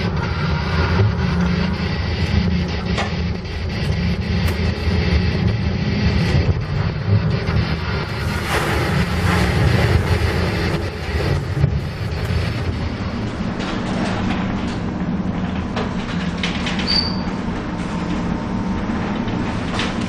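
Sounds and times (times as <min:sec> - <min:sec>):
storm wind: 0:00.0 - 0:16.8
heavy sea: 0:00.0 - 0:17.6
ship engine rumble: 0:00.0 - 0:20.0
wave breaking and spray: 0:07.6 - 0:13.0.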